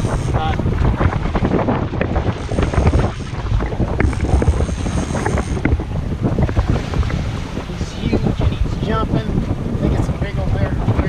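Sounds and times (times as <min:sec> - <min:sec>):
faint high whine: 0:00.0 - 0:00.6, 0:02.4 - 0:05.7
water rushing alongside boat: 0:00.0 - 0:11.0
wind buffeting microphone: 0:00.0 - 0:11.0.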